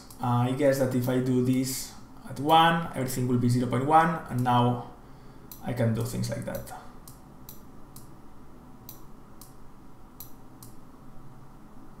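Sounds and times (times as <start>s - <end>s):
faint low hum: 0.0s - 12.0s
computer mouse clicking: 10.2s - 10.8s.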